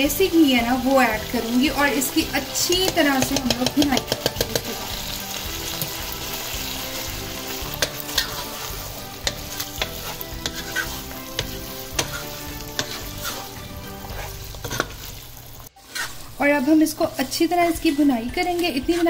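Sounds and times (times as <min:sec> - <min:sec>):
stew sizzling in a pan: 0:00.0 - 0:19.0
spoon clicking against pan: 0:02.7 - 0:04.8.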